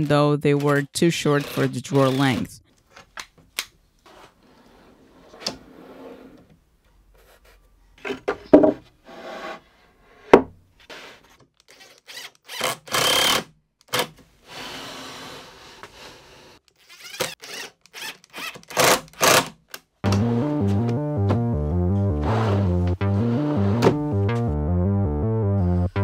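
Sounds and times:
drawer slides sliding and rubbing: 4.1 - 6.5, 9.0 - 11.3, 14.5 - 16.6, 22.2 - 24.0
cordless drill driving screws: 11.6 - 14.1, 16.7 - 19.5.

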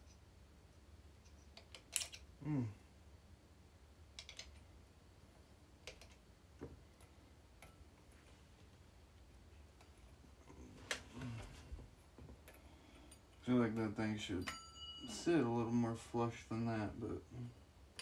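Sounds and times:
low steady hum: 0.0 - 18.0
small parts clicking and tapping: 1.2 - 2.3, 4.1 - 4.7, 5.8 - 8.7.

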